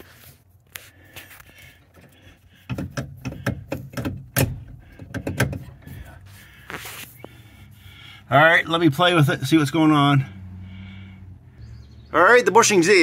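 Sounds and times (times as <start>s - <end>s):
hands working metal parts: 1.5s - 6.1s.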